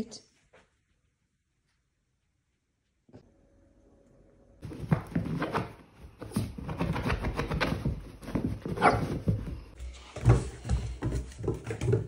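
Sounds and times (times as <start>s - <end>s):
paws scratching cushion: 4.6s - 9.8s
dog barking and whining: 8.7s - 9.2s.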